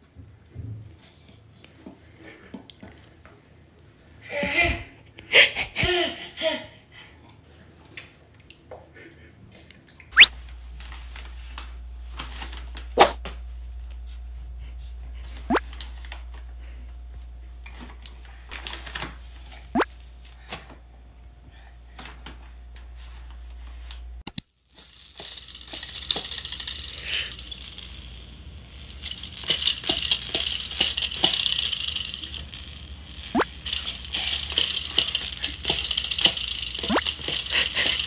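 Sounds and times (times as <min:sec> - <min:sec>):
low steady hum: 0:10.2 - 0:38.0.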